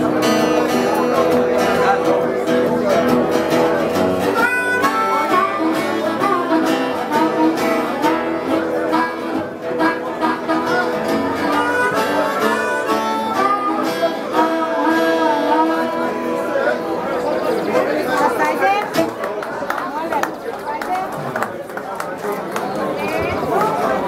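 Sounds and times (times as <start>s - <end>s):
strummed acoustic guitar: 0.0s - 17.7s
blues harmonica solo: 3.0s - 17.0s.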